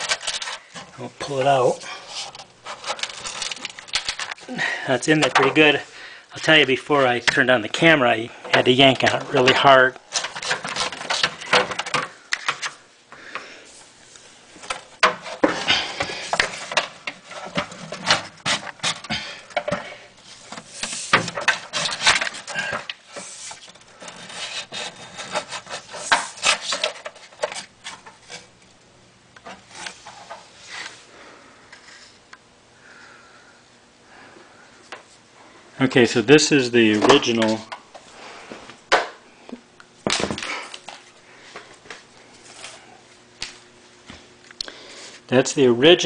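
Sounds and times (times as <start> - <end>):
rubbing scraping and knocking: 0.0 - 4.4, 8.5 - 12.7, 14.6 - 28.5.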